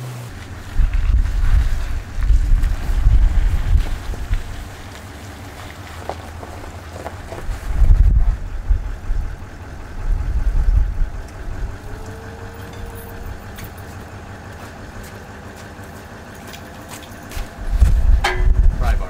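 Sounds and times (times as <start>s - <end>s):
truck engine idling: 0.0s - 19.0s
wind buffeting microphone: 0.3s - 5.0s, 6.1s - 13.8s, 17.4s - 19.0s.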